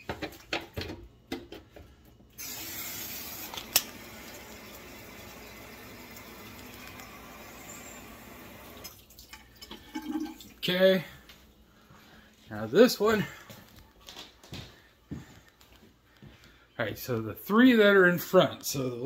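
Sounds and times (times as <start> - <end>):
tap running into watering can: 0.1 - 10.5.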